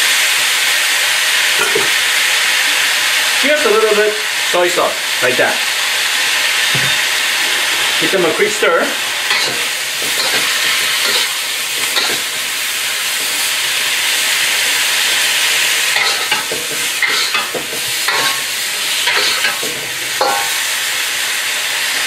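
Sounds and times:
food sizzling in a wok: 0.0 - 22.0
spatula scraping and clinking on wok: 9.3 - 12.4, 15.9 - 20.6.

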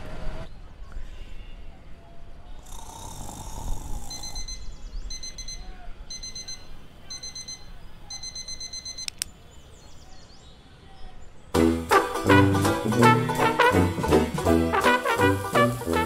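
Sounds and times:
digital alarm clock beeping: 4.1 - 9.2
sharp click: 9.0 - 9.4.

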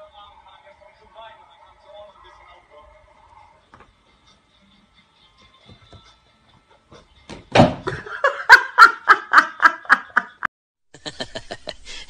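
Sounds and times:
person laughing: 7.9 - 12.0.

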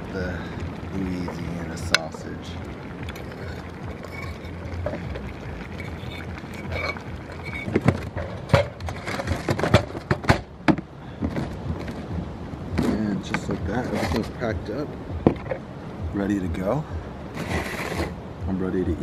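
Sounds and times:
metal fork scraping frying pan: 4.0 - 4.6, 5.8 - 7.7
sharp clanks and knocks: 6.6 - 12.1, 15.2 - 15.6.

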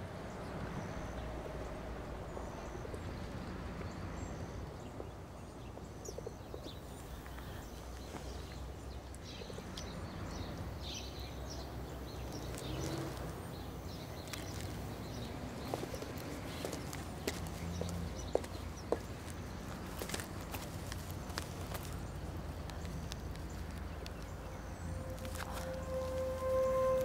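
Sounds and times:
steady low rumble: 13.3 - 27.0
faint clicks: 20.0 - 24.5.

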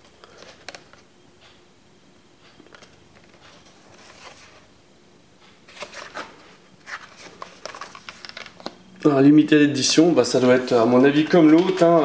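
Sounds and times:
plastic crackles: 5.8 - 8.8
plastic blister pack crinkling: 6.9 - 8.8.

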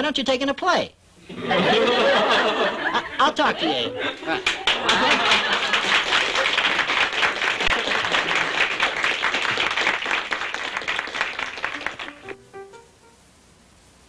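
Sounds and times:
audience applauding: 4.4 - 12.4
music: 11.6 - 13.4.

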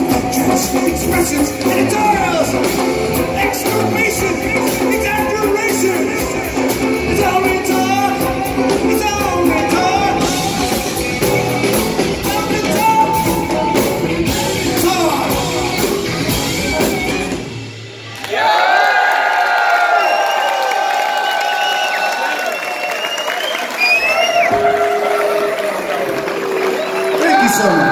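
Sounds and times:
person singing: 0.0 - 17.1
electric guitar: 0.0 - 18.1
bass guitar: 0.0 - 18.2
drum kit: 0.0 - 18.8.

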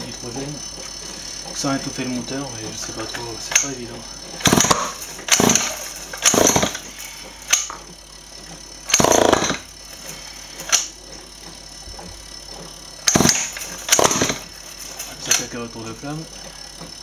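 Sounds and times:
small engine cranking: 0.0 - 17.0.

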